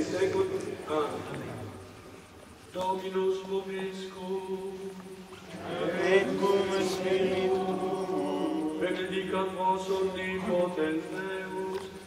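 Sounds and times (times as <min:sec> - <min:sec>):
crowd of voices singing: 0:04.0 - 0:12.0.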